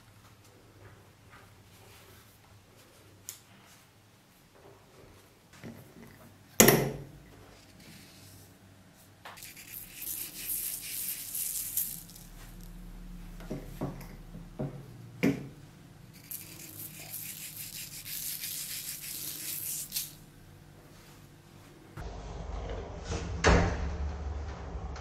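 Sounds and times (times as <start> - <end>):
cornmeal sprinkling hiss: 9.3 - 12.8, 16.1 - 20.3.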